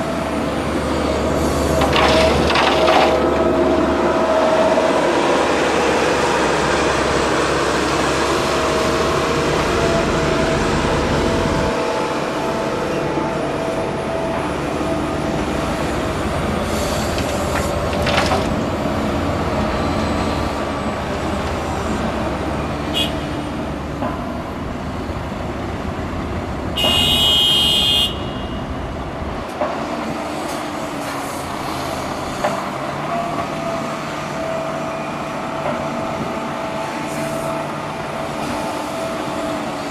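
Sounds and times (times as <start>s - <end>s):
excavator diesel engine under load: 0.0s - 27.5s, 28.6s - 39.9s
rocks clanking into steel truck body: 1.8s - 3.3s, 17.1s - 18.7s
horn sounding: 26.8s - 28.7s.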